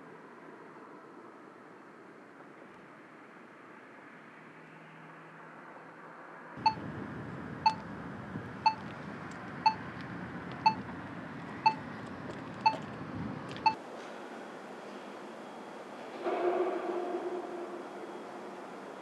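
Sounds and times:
crossing signal beeping: 6.6s - 6.8s, 7.6s - 7.8s, 8.6s - 8.8s, 9.6s - 9.8s, 10.6s - 10.9s, 11.6s - 11.8s, 12.6s - 12.8s
street hum: 6.6s - 16.1s.

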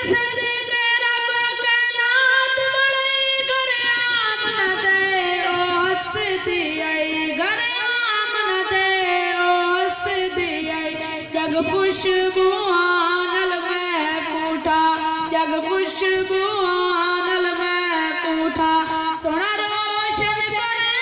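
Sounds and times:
boy singing into a microphone: 0.0s - 21.0s.

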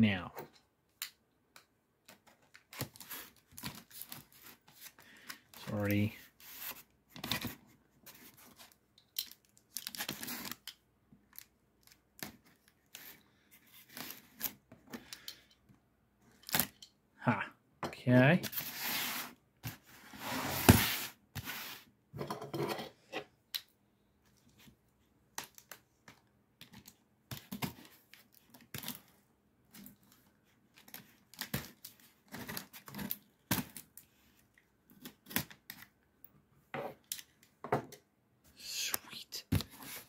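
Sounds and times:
packing tape cut and ripped: 9.2s - 10.8s.

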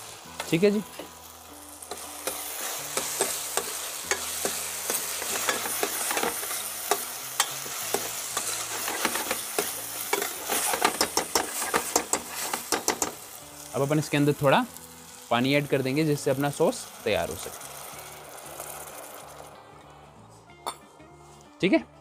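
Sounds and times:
vegetables sizzling in a pan: 0.0s - 19.8s
utensil clicking against pan: 3.0s - 13.2s.

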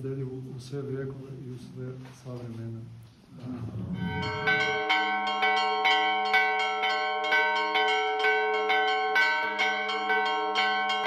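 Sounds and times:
church bells ringing: 3.9s - 11.0s.

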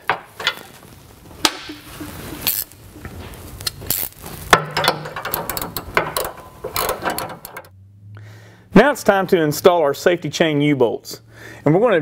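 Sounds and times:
ratchet wrench clicking: 3.9s - 4.2s, 4.8s - 7.7s.

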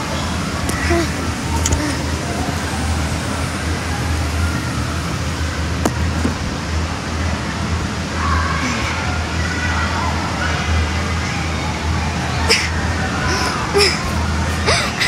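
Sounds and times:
air blowers droning: 0.0s - 15.0s.

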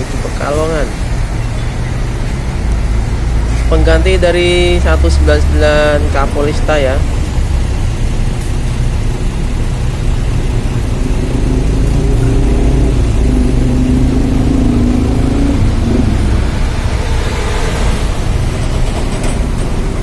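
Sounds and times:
bus diesel engine idling: 0.0s - 20.0s
higher hum: 10.4s - 20.0s.

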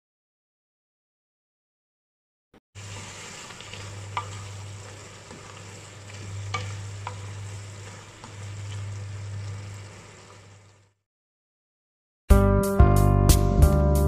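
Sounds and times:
sauce sizzling in a frying pan: 2.8s - 11.0s.

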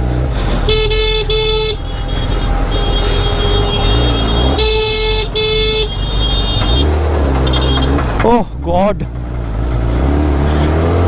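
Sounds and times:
low rumble of engines: 0.0s - 11.0s
vehicle horn honking: 0.6s - 8.0s.

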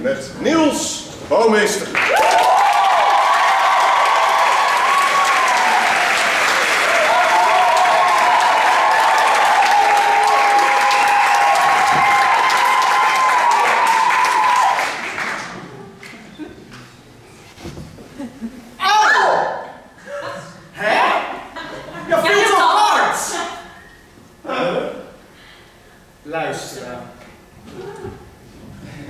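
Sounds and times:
audience applauding: 1.9s - 16.3s.

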